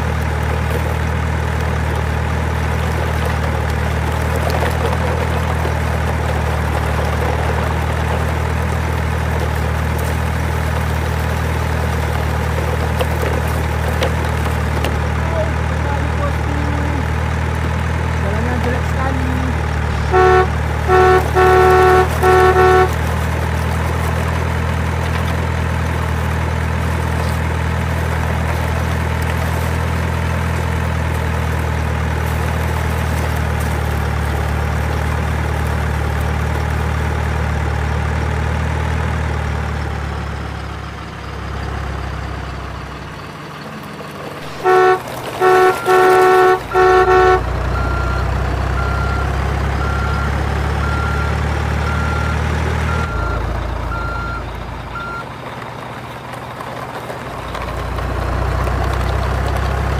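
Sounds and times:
truck engine idling: 0.0s - 59.9s
short regular beeps: 19.9s - 22.9s, 44.5s - 51.3s
horn toots: 19.9s - 23.3s, 44.4s - 48.2s.

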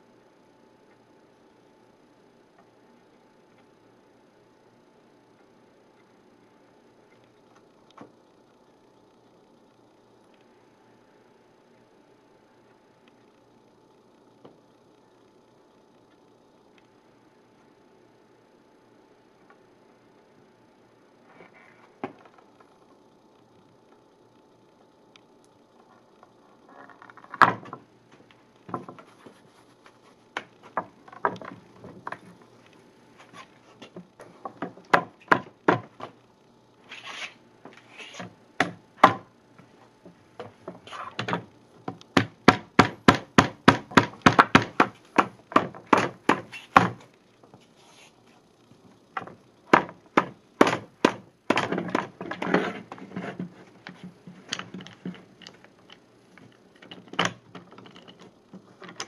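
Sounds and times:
wood and metal clamps knocking: 34.4s - 36.1s, 40.4s - 47.0s, 49.2s - 56.0s, 56.8s - 59.0s.

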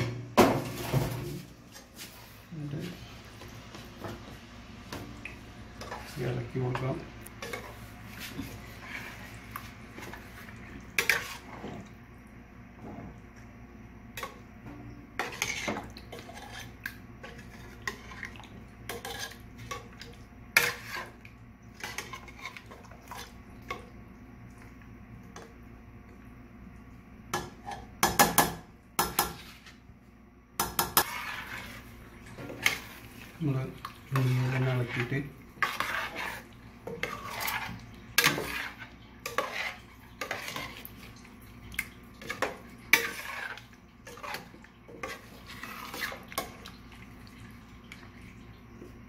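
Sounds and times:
metal ladle scraping pot: 15.2s - 18.3s, 30.7s - 33.0s, 34.1s - 40.9s, 42.2s - 46.6s.

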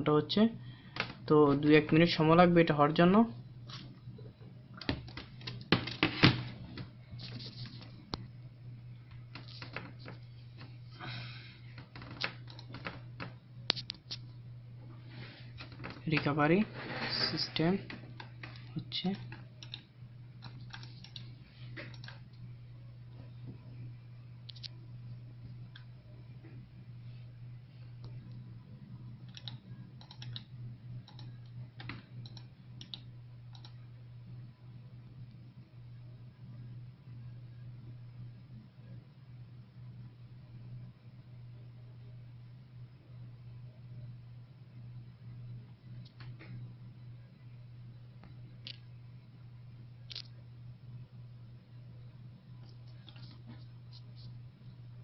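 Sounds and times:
steady low hum: 0.0s - 55.0s
computer mouse clicking: 12.1s - 12.9s, 18.2s - 22.2s, 29.3s - 33.8s, 50.1s - 50.3s, 52.6s - 53.4s.

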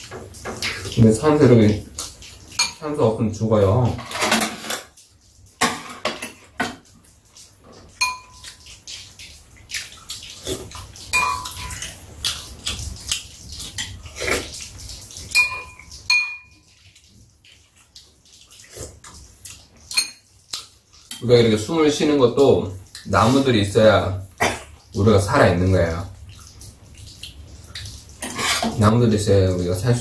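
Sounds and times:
chopsticks and spoons scraping bowls: 28.2s - 28.8s.

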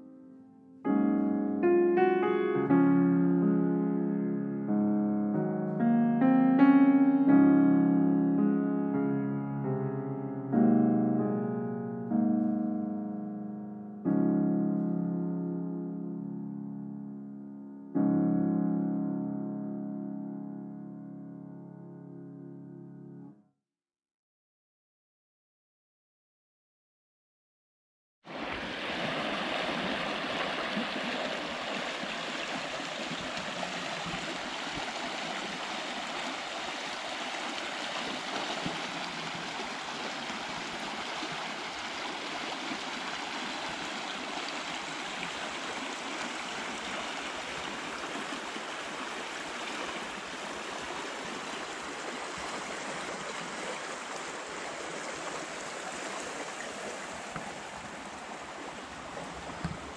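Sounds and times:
creek running over gravel: 28.3s - 59.9s.

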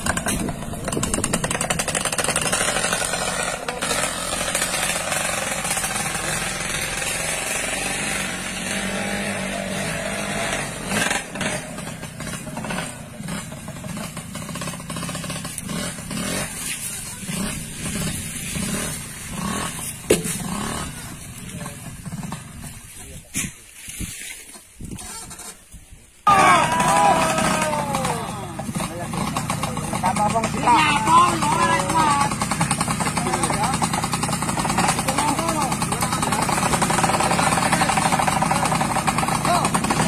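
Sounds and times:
small motorcycle engines running: 0.0s - 23.2s, 26.3s - 40.0s
sharp knock: 20.1s - 20.4s.

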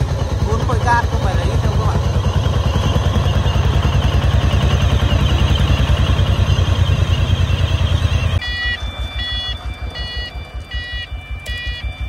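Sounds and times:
diesel engine chugging: 0.0s - 12.0s.

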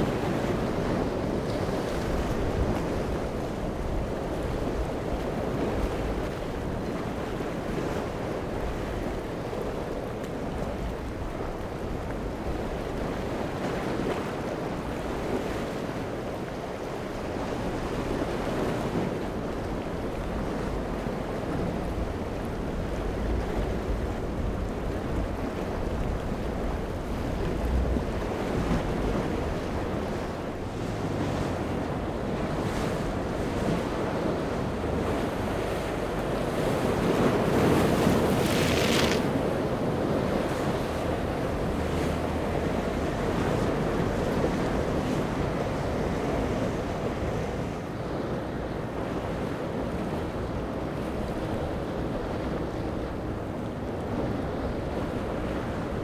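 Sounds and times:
choppy waves: 0.0s - 56.0s
wind buffeting microphone: 0.0s - 56.0s
boat hull spray: 27.5s - 49.3s.

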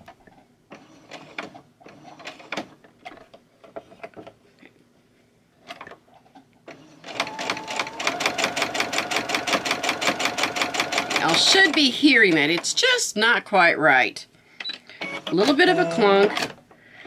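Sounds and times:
sewing machine stitching: 6.7s - 12.7s.

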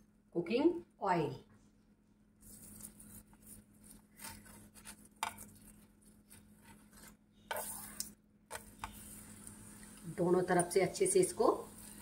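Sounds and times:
spoon scraping a frying pan: 6.3s - 9.4s.

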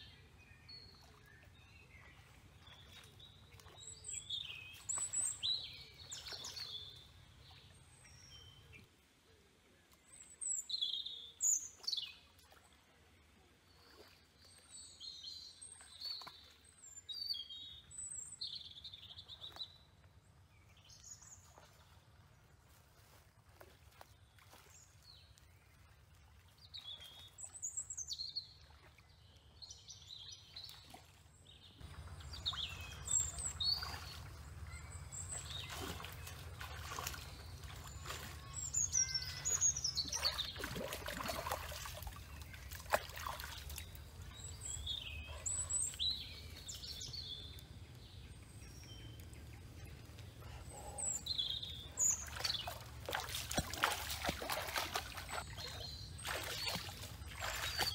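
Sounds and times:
water splashing from wading: 0.8s - 7.8s, 13.6s - 14.9s, 30.4s - 45.7s, 51.8s - 57.9s
birds chirping: 31.5s - 57.9s.

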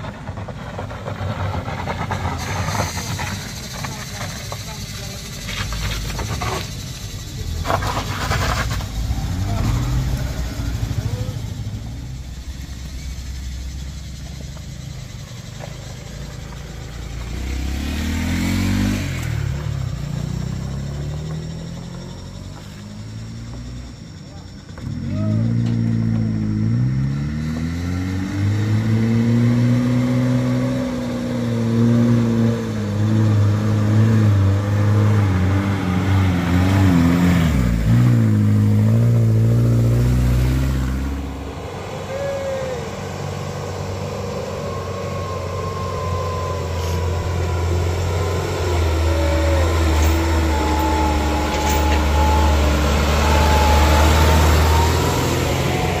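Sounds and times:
truck diesel engine labouring: 0.0s - 56.0s
thin high whine: 40.7s - 56.0s.

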